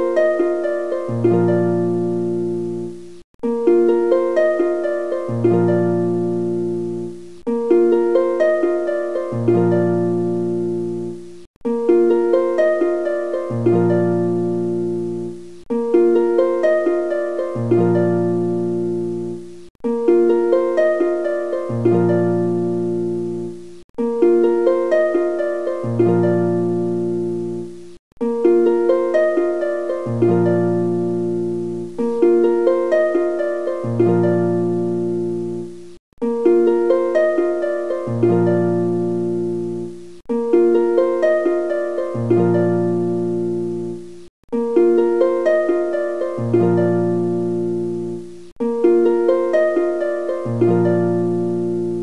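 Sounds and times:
plucked strings melody: 0.0 - 52.0.

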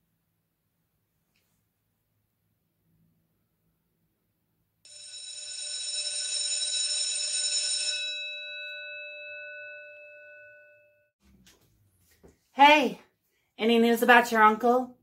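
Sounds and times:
electric bell ringing: 4.9 - 11.1.

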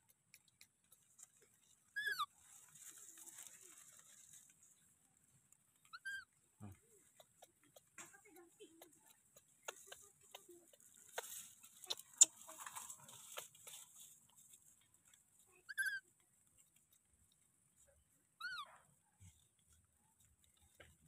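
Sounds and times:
rustling: 0.3 - 21.0
baby monkey squeaking: 2.0 - 2.3, 5.9 - 6.3, 8.8 - 13.7, 15.7 - 16.0, 18.4 - 18.7.

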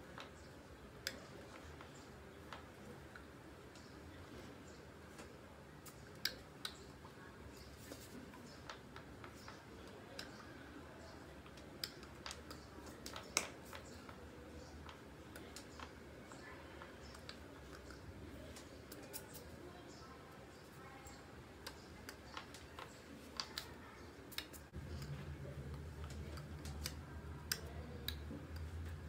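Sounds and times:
faint clicks and taps: 0.1 - 29.0.

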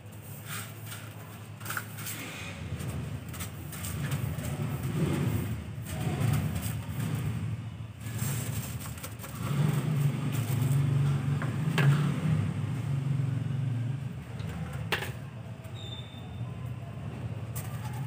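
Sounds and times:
brush sweeping concrete floor: 0.0 - 7.0, 8.0 - 11.0
vehicle engine rumbling: 0.0 - 18.0.

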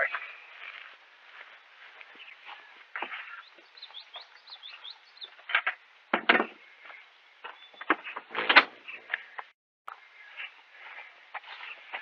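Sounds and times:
small bird chirping: 1.5 - 5.5, 6.6 - 8.2
loud wooden knocks: 5.5 - 6.6.

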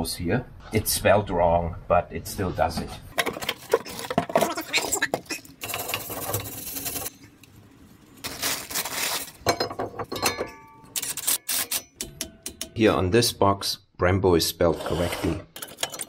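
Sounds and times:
plastic wrapping crinkling: 6.7 - 9.7
metal disc clinking and ringing: 9.5 - 12.7.

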